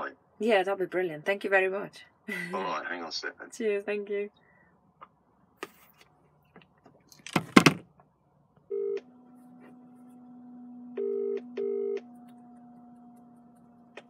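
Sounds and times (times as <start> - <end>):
low hum on phone line: 8.0 - 14.0
telephone ringing tone: 8.7 - 9.1, 11.0 - 12.0.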